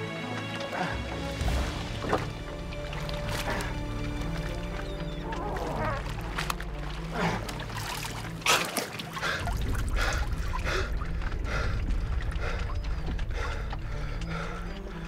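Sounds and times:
low orchestral score: 0:00.0 - 0:15.0
low rumble: 0:09.4 - 0:15.0.

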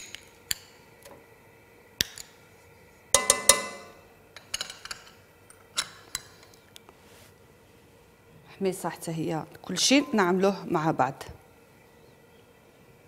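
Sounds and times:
metal spoon clinking on ceramic bowl: 0:03.2 - 0:05.1.

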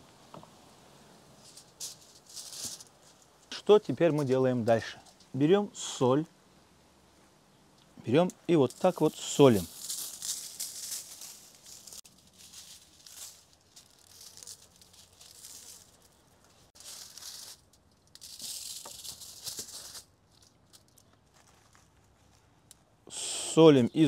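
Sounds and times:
salt sprinkling onto meat: 0:08.5 - 0:20.1.

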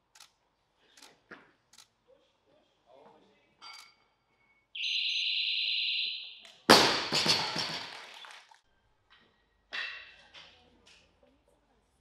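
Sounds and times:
barbell crashing onto platform: 0:06.7 - 0:08.0.

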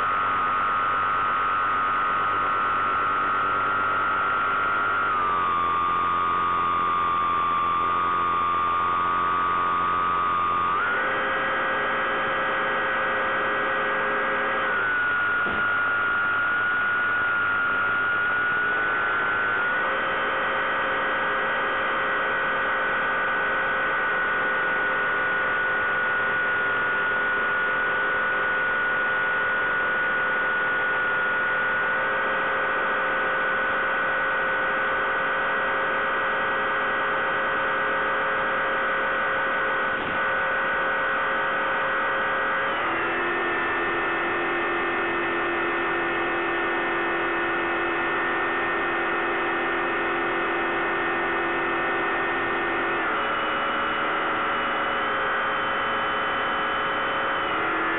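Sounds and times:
electric motor and propeller humming: 0:00.0 - 0:22.1.

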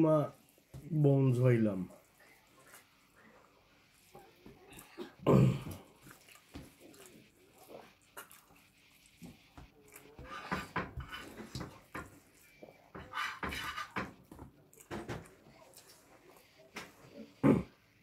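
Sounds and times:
wet chewing and lip-smacking: 0:05.8 - 0:10.4.

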